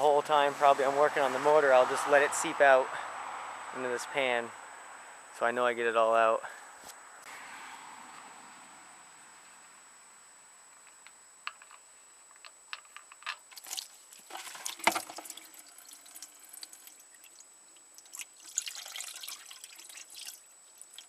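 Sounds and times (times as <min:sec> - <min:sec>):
oil dripping into drain pan: 0:13.5 - 0:21.0.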